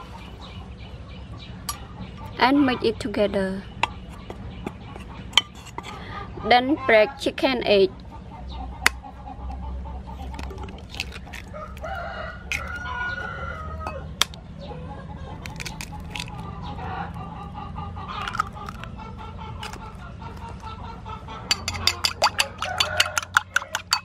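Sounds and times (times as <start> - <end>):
rooster crowing and clucking: 9.3 - 24.0
eggs cracked against ceramic bowl: 10.2 - 11.9, 12.5 - 12.8, 13.8 - 14.4, 15.4 - 16.4, 18.2 - 18.9, 19.6 - 20.7, 21.4 - 24.0
eggs beaten in bowl: 15.4 - 16.4, 18.2 - 18.9, 19.6 - 20.6, 21.4 - 24.0.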